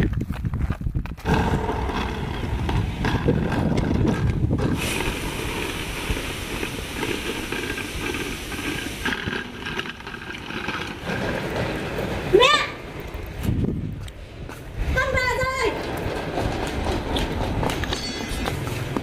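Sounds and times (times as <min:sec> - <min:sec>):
suitcase wheels rattling on gravel: 0:00.0 - 0:14.1, 0:15.4 - 0:19.0.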